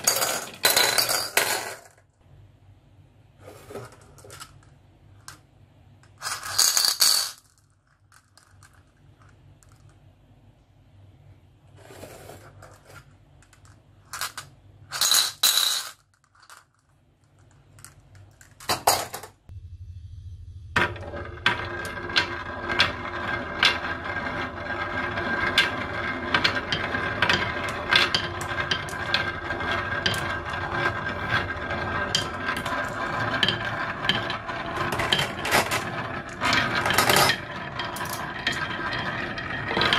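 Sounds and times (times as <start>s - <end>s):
marbles rolling on wooden tracks: 0.0s - 2.0s, 6.0s - 10.1s, 20.8s - 39.9s.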